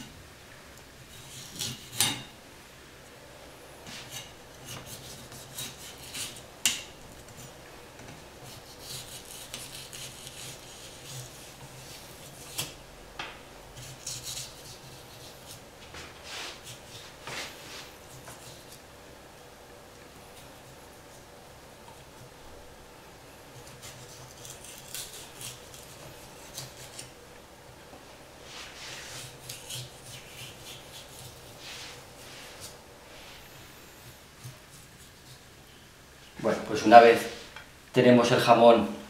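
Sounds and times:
knife rasping on ham rind: 0:01.1 - 0:02.2, 0:03.8 - 0:07.6, 0:08.4 - 0:12.8, 0:13.8 - 0:18.8, 0:23.6 - 0:27.2, 0:28.4 - 0:33.3, 0:34.3 - 0:35.5.

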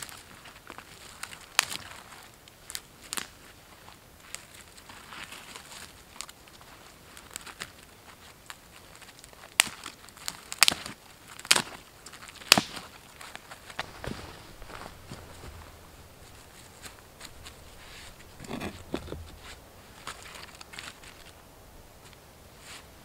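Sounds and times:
dry twigs rustling: 0:00.0 - 0:23.0
twigs snapping: 0:00.1 - 0:03.4, 0:08.5 - 0:22.2.

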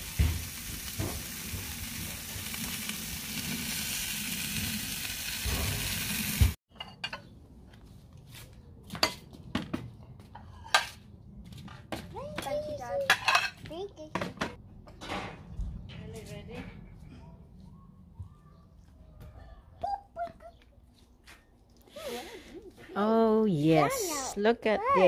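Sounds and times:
steaks sizzling on a grill: 0:00.0 - 0:06.6
plates and cutlery clinking: 0:13.1 - 0:13.6.

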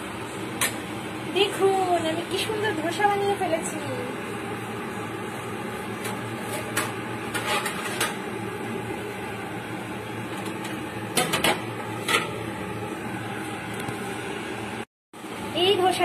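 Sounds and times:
spatula scraping a metal pan: 0:06.5 - 0:08.2.

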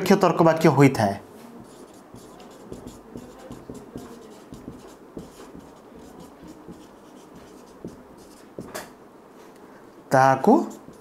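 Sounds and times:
marker scratching on whiteboard: 0:01.6 - 0:08.9, 0:10.5 - 0:11.0.

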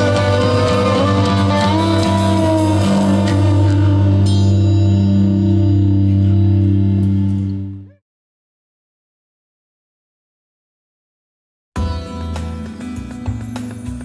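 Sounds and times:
cymbal crash: 0:00.0 - 0:07.2
rock music: 0:00.0 - 0:07.8, 0:11.8 - 0:14.0.

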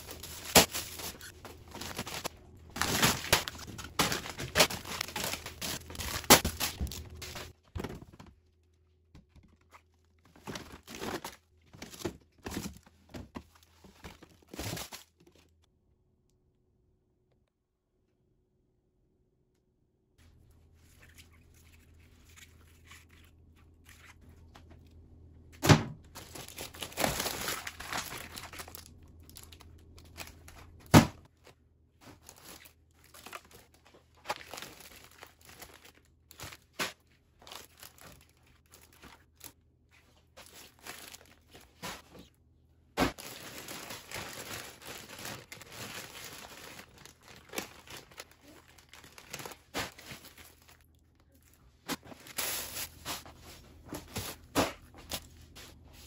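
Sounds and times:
plastic packaging crinkling: 0:00.0 - 0:07.6, 0:26.2 - 0:30.8, 0:32.1 - 0:39.6, 0:40.4 - 0:42.0, 0:43.1 - 0:53.2.

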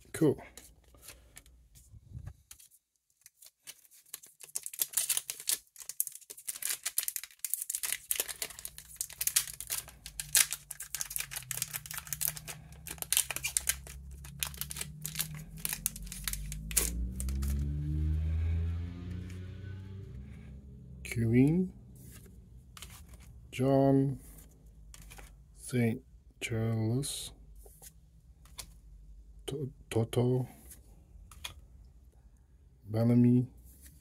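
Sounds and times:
foil wrapper crinkling: 0:02.5 - 0:17.5.

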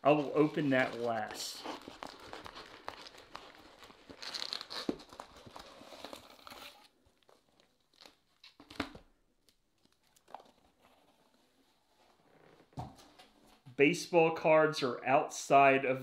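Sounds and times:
wrappers crinkling and rustling: 0:00.0 - 0:12.6.

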